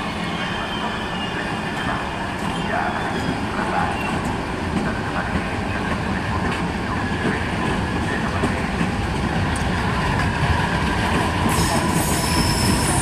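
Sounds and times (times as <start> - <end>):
train wheels rumbling on rails: 0.0 - 13.0
high wheel squeal: 11.5 - 13.0.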